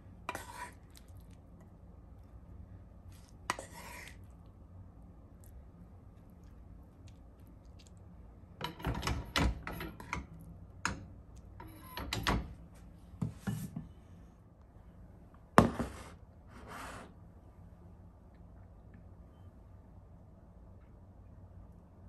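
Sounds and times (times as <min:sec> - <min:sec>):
spatula scraping a frying pan: 0:00.3 - 0:00.8, 0:03.5 - 0:04.2.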